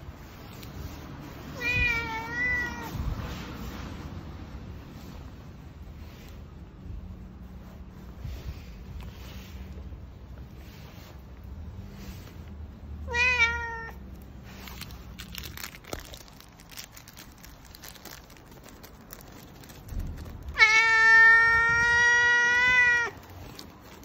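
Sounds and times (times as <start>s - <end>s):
cat meowing: 1.6s - 3.1s, 13.0s - 14.1s, 20.5s - 23.4s.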